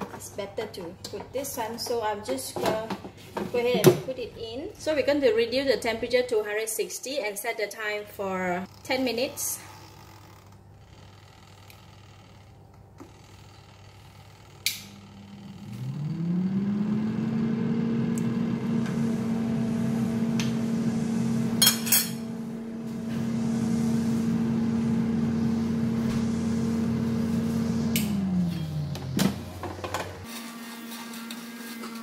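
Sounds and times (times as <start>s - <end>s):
air fryer fan motor humming: 14.0s - 30.3s.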